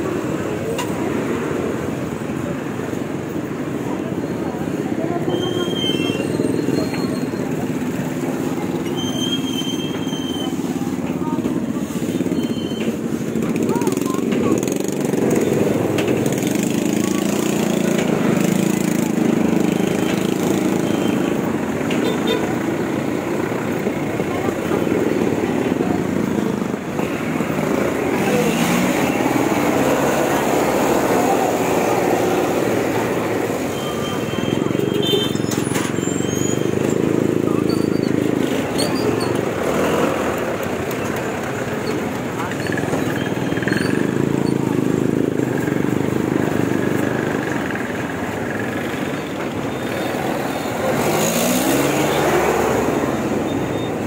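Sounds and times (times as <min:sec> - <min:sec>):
street traffic engines: 0:00.0 - 0:54.0
engine revving: 0:26.0 - 0:33.7, 0:49.8 - 0:54.0.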